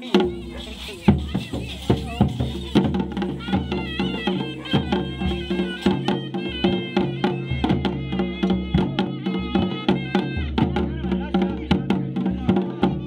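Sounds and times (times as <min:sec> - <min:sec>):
brass cymbals clashing: 0:00.0 - 0:07.7
reed pipe melody: 0:00.0 - 0:11.0
steady drumbeat: 0:00.0 - 0:13.0.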